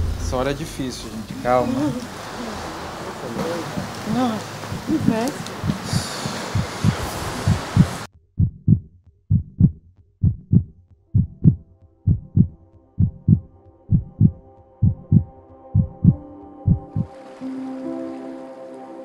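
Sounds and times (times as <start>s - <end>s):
background noise: 0.0s - 8.1s
heartbeat thumps: 3.6s - 17.1s
soft sustained chord: 12.6s - 19.0s.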